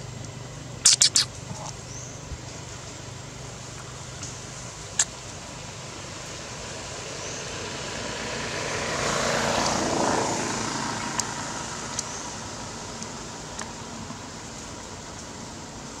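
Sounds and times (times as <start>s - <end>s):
vehicle passing: 6.4s - 12.9s.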